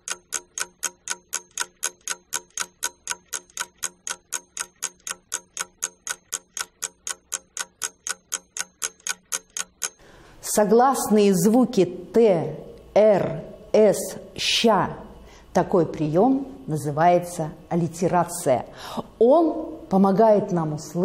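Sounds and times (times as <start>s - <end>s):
clock ticking: 0.0s - 10.1s.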